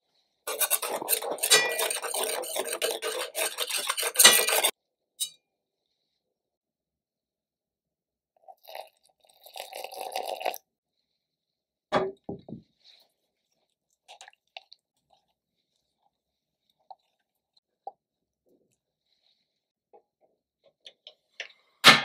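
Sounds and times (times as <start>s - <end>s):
spatula scraping glass bowl: 0.5s - 5.3s.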